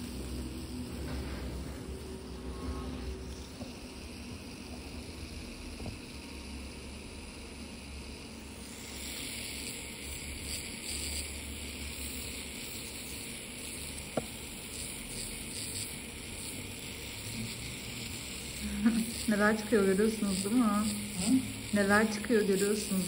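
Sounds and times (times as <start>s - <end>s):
drill motor hum: 0.0s - 23.0s
high hissing abrasion: 8.4s - 23.0s.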